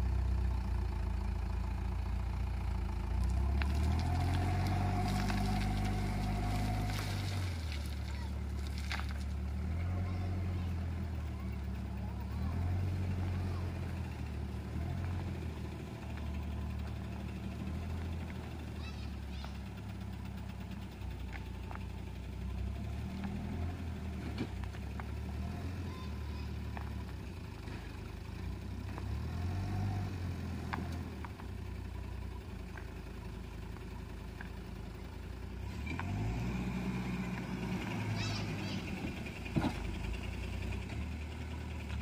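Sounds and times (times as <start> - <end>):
diesel engine idling: 0.0 - 42.0.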